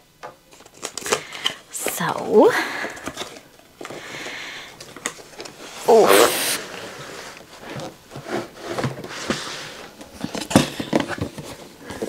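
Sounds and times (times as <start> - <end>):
cardboard rubbing and scraping: 5.5 - 12.0.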